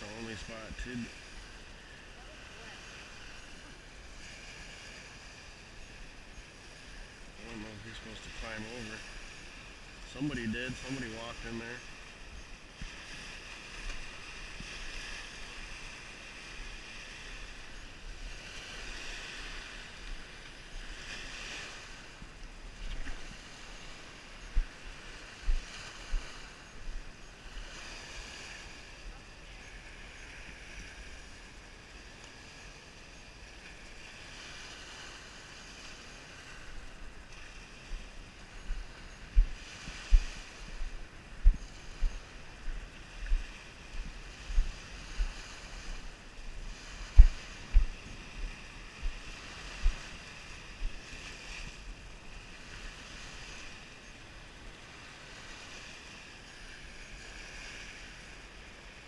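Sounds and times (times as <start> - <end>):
waves washing onto rocky shore: 0.0 - 59.0
low thumps: 47.2 - 47.9.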